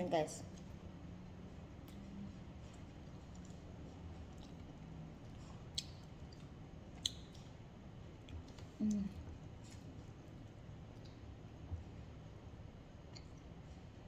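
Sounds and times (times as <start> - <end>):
person humming low: 8.8 - 9.2.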